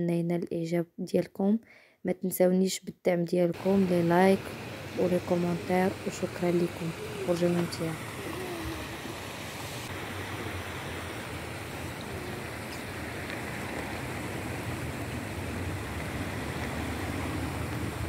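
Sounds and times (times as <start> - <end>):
stream rippling over stones: 3.6 - 18.0
wind rumble on microphone: 10.2 - 18.0.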